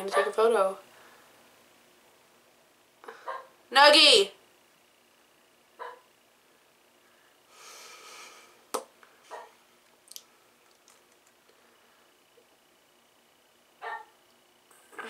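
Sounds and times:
soft breath: 6.5s - 9.4s.

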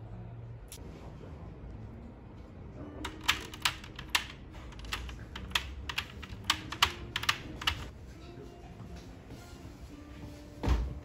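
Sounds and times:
sharp irregular clicks and taps: 3.1s - 7.9s.

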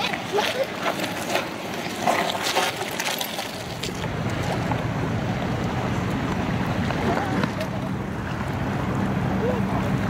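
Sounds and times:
steady low rumble: 0.1s - 10.0s.

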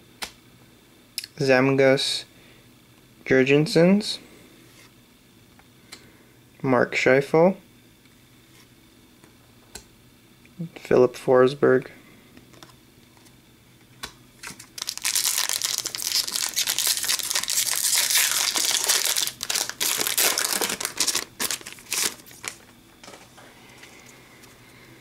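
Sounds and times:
foil wrapper crinkling and tearing: 14.4s - 22.7s.

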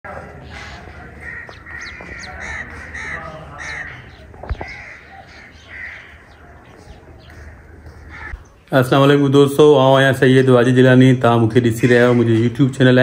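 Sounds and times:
crows cawing: 0.3s - 8.6s, 11.6s - 12.6s.

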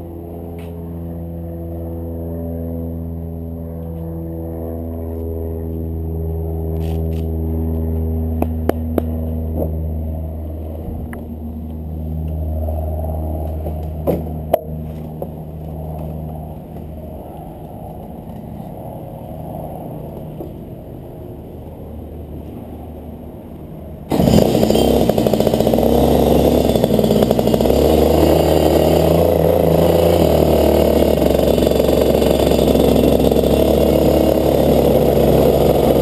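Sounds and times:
kart engine idling: 24.1s - 36.0s.

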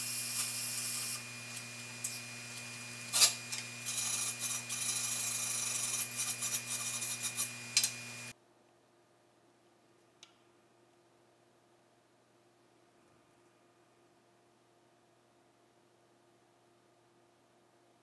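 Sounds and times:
hand tool scraping steel: 0.0s - 8.0s
welding arc crackling: 0.0s - 8.3s
electrical hum: 0.0s - 8.4s.

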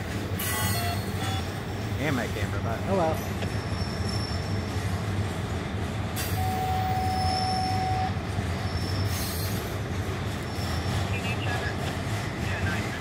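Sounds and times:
train wheels rumbling on rails: 0.0s - 13.0s
train wheel squeal: 0.4s - 1.7s, 3.4s - 5.1s, 6.2s - 12.8s.

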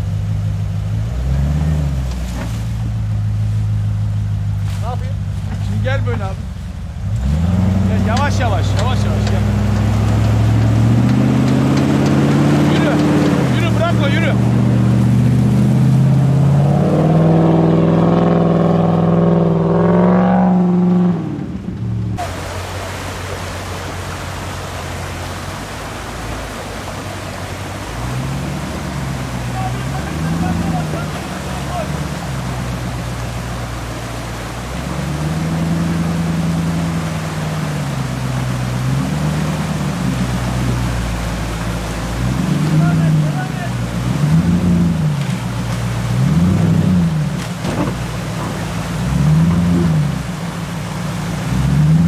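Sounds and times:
car engine revving: 0.0s - 52.0s
stream water rushing: 0.0s - 52.0s.

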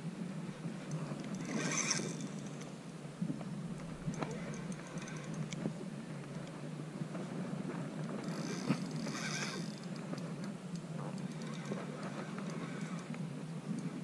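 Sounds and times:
fishing reel whirring: 1.0s - 2.7s, 4.0s - 5.6s, 8.1s - 10.5s, 11.1s - 13.2s.

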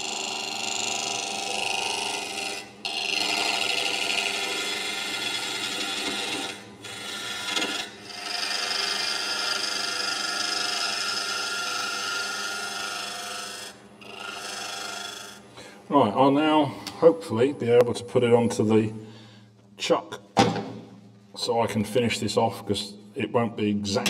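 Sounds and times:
gouge cutting wood on lathe: 0.0s - 15.4s
lathe humming: 0.0s - 15.6s.

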